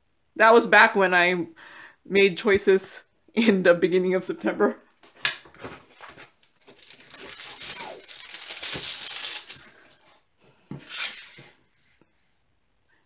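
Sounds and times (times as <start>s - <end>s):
rustling: 5.0s - 10.2s
plastic film crinkling: 5.8s - 10.1s.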